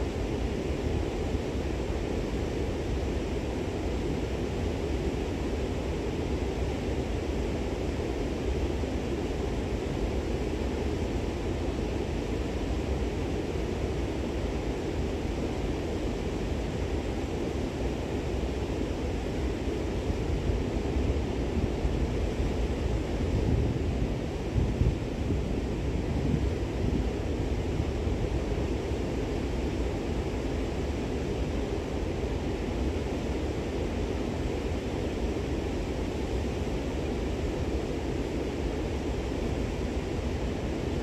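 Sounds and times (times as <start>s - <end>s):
wind on microphone: 20.4s - 29.6s.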